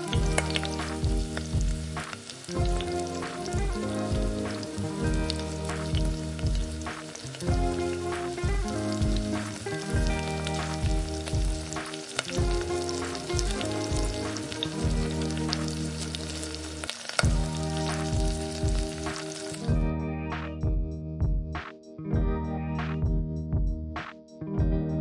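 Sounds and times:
vegetables sizzling in oil: 0.0 - 19.7
background music: 0.0 - 25.0.

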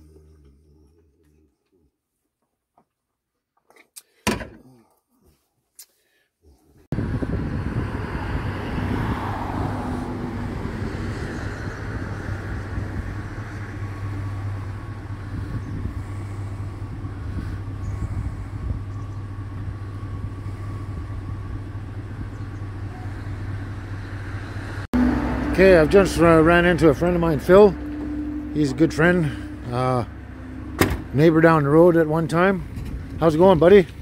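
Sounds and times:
car passing: 7.0 - 33.8
vehicle engine idling: 10.0 - 34.0.

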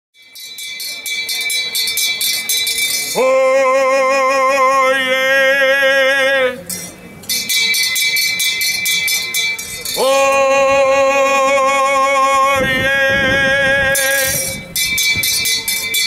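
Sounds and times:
brass handbell ringing rapidly: 0.2 - 3.2, 6.7 - 10.2, 14.0 - 16.0
person giving long loud call: 3.2 - 6.6, 10.0 - 14.6.

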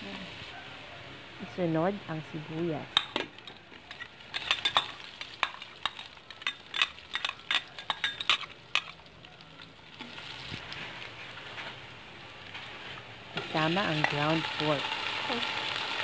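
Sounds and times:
onions sizzling in hot oil: 0.0 - 16.0
metal spoon clicking and scraping: 3.0 - 9.0.

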